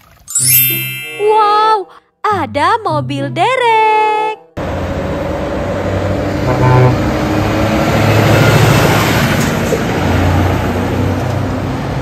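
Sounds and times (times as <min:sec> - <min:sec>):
diesel truck engine driving by: 0:04.6 - 0:12.0
street traffic: 0:04.6 - 0:12.0.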